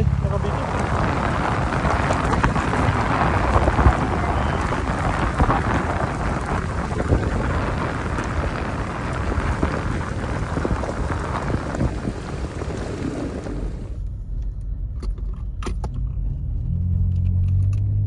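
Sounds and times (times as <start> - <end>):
tyres rolling on gravel: 0.0 - 14.0
stones ticking: 0.4 - 13.7.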